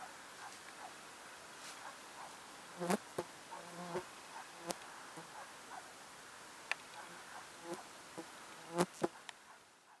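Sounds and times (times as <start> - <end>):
insect buzzing: 2.7 - 5.3, 7.0 - 9.2.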